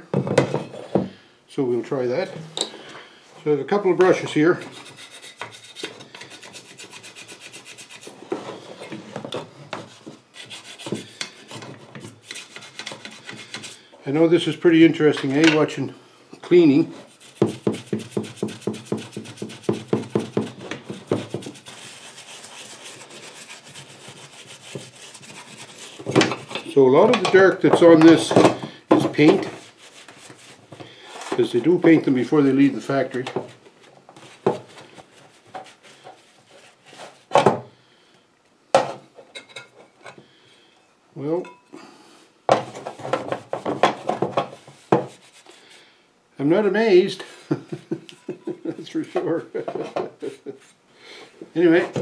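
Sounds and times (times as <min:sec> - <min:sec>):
brush scrubbing metal part: 0:10.3 - 0:13.8, 0:17.0 - 0:26.6.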